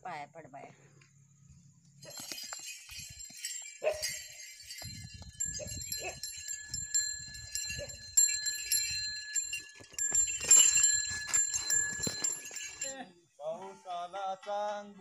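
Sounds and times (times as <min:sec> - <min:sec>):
small brass bells jingling: 0:01.9 - 0:13.1.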